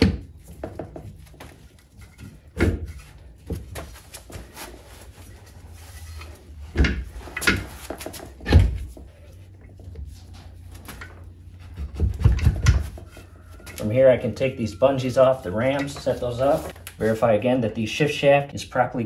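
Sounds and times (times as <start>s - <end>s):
dull metal knocks and clunks: 0.0s - 4.0s, 6.7s - 9.0s, 11.0s - 13.1s.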